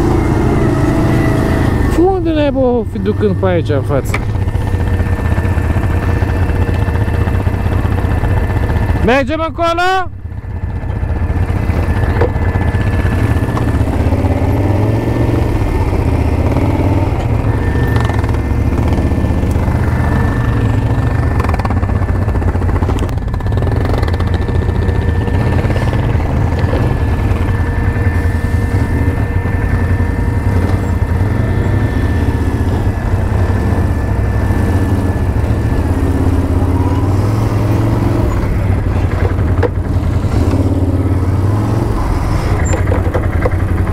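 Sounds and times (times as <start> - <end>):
quad bike engine running: 0.0 - 43.9.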